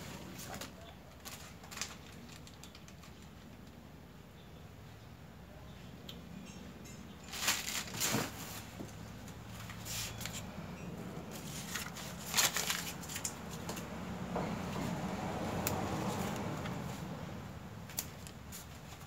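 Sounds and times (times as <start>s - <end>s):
plastic packaging crinkling: 0.0s - 3.7s, 7.3s - 8.8s, 11.3s - 13.8s.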